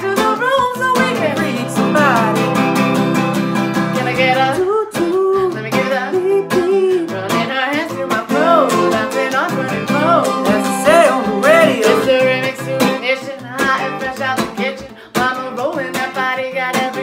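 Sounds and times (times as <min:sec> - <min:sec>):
acoustic guitar strummed: 0:00.0 - 0:17.0
gliding melody line: 0:00.8 - 0:04.7, 0:10.0 - 0:12.4.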